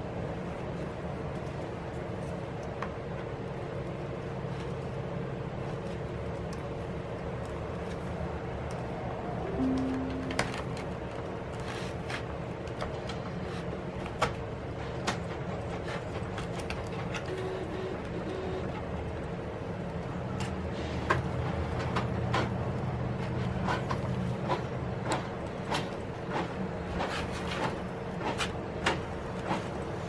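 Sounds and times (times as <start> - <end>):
low hum: 8.7 - 11.3.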